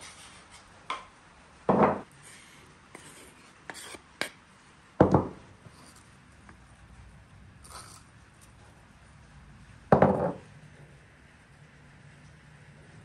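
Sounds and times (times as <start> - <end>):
spice rustling: 7.6 - 8.6.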